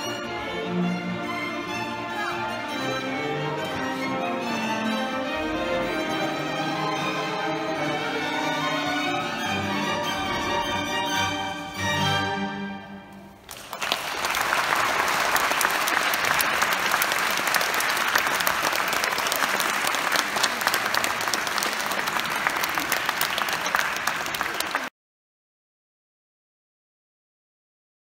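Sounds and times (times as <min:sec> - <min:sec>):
string ensemble chord: 0:00.0 - 0:13.3
audience applause: 0:13.4 - 0:24.9.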